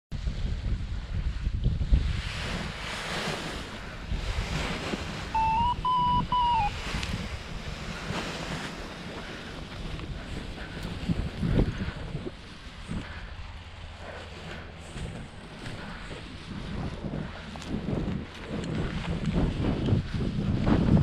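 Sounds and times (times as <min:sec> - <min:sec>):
wind buffeting microphone: 0:00.1 - 0:21.0
loud electronic beeps: 0:05.4 - 0:06.7.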